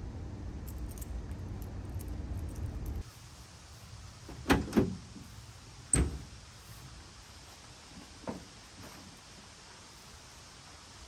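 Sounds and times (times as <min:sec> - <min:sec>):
metallic tailgate clank: 0:05.9 - 0:06.3.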